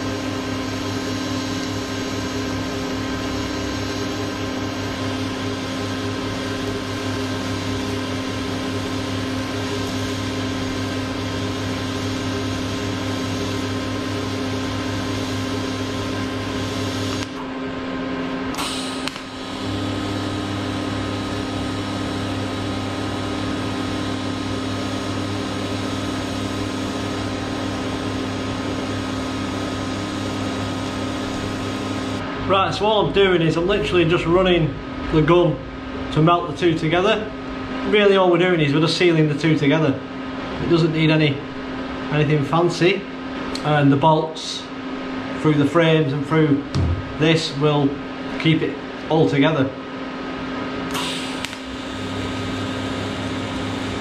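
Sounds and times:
welding arc buzzing: 0:00.0 - 0:32.3, 0:50.9 - 0:54.0.

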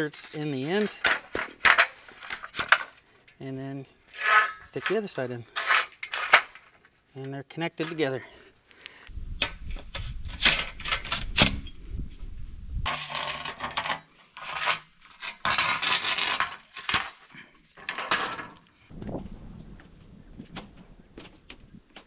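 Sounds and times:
metal sliding on metal: 0:04.1 - 0:06.7.

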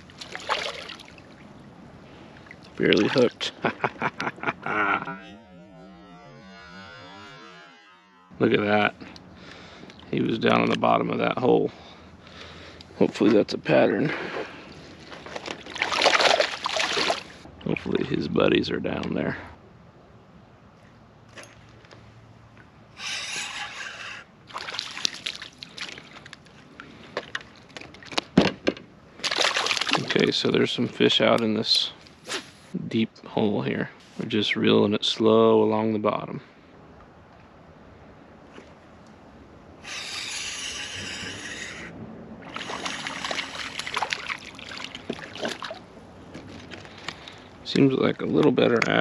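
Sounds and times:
water sloshing around kayak: 0:00.0 - 0:03.3, 0:14.1 - 0:17.4, 0:24.5 - 0:28.2, 0:42.4 - 0:47.4
water dripping: 0:42.5 - 0:45.9.

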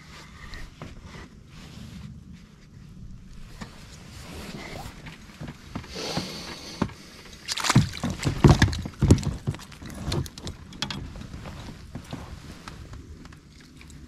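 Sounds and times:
thumps against rubber hull: 0:04.9 - 0:12.9
fish splashing at surface: 0:07.4 - 0:08.6.

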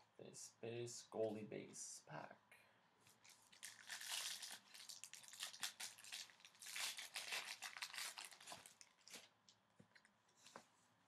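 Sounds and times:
foil wrapper crinkling and tearing: 0:03.2 - 0:09.3.

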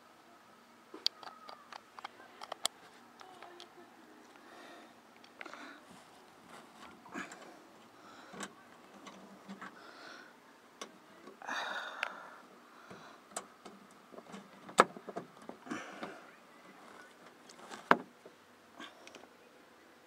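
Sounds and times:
light clicks and knocks: 0:12.8 - 0:16.2, 0:16.8 - 0:18.4.

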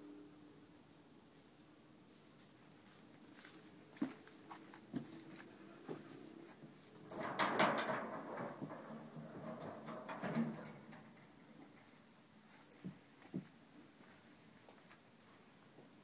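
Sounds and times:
clattering and rattling: 0:07.0 - 0:11.4.

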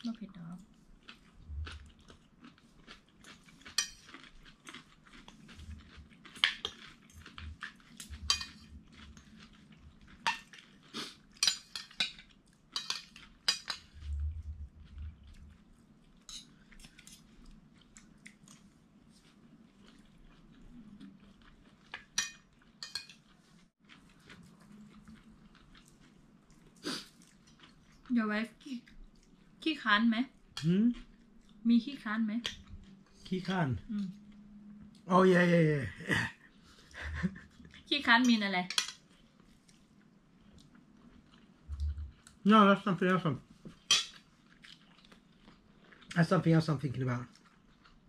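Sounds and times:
cutlery clinking on plates: 0:11.4 - 0:13.9, 0:22.0 - 0:23.2.

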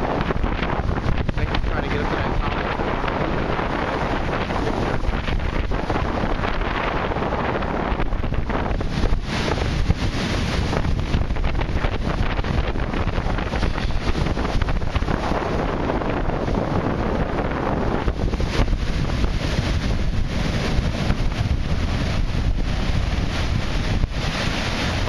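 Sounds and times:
surf crashing around pilings: 0:00.0 - 0:25.0
wind buffeting microphone: 0:00.0 - 0:25.0.

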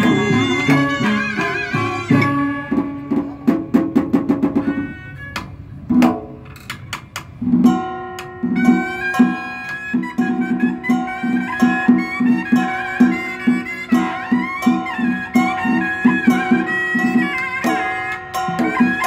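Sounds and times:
held melody line: 0:00.0 - 0:03.6, 0:07.8 - 0:19.0
plucked string notes: 0:00.0 - 0:06.6
sharp percussion clicks: 0:05.3 - 0:10.4.

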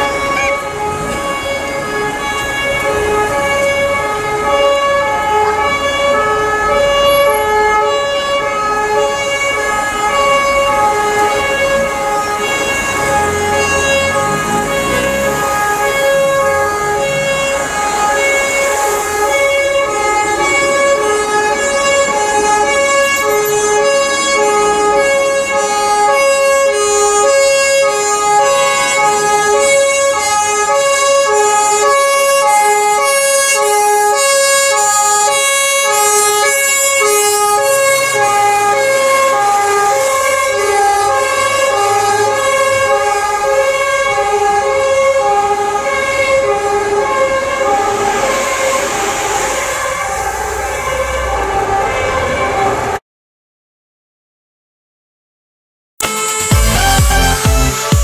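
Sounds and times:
traffic noise: 0:00.0 - 0:53.0, 0:56.1 - 0:58.0
two-tone siren: 0:00.0 - 0:53.0, 0:56.0 - 0:58.0.

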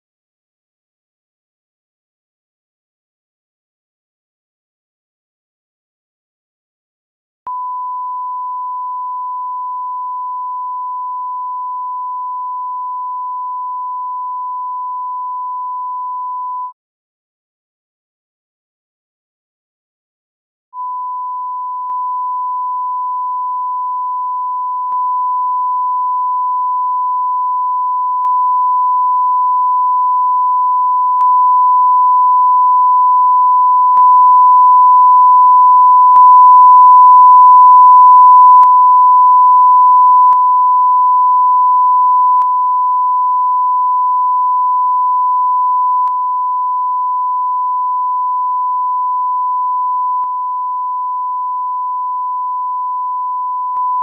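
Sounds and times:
sine test tone: 0:07.5 - 0:16.8, 0:20.8 - 0:54.0.

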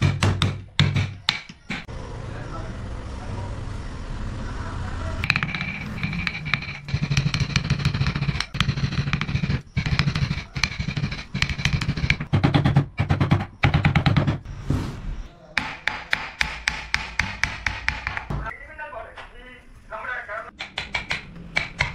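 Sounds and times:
mallet striking chisel: 0:00.0 - 0:01.9, 0:05.2 - 0:14.4, 0:15.6 - 0:18.5, 0:20.6 - 0:21.9.

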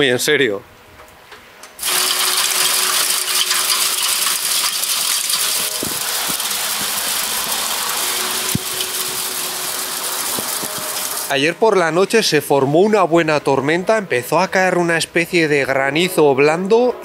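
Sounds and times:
hail pelting on surfaces: 0:01.8 - 0:11.3.

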